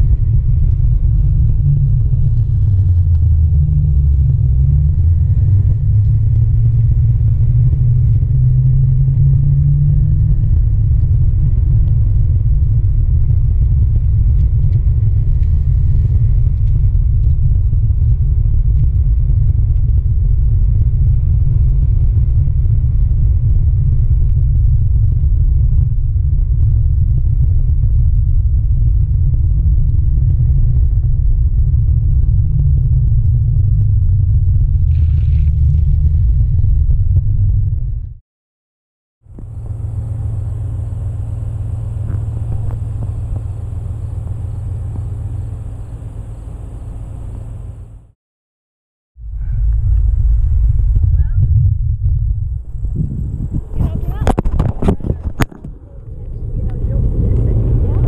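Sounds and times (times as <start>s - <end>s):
board rolling on asphalt: 0.0s - 27.1s, 27.8s - 37.6s, 39.4s - 47.8s, 49.6s - 58.0s
low wavering tone: 39.3s - 48.1s.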